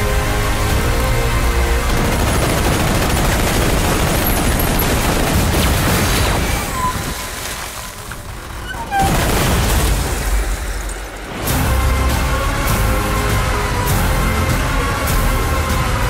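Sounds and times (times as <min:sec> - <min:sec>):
film trailer music: 0:00.0 - 0:06.9, 0:09.7 - 0:16.0
machine-gun fire: 0:01.8 - 0:06.7, 0:09.1 - 0:10.6.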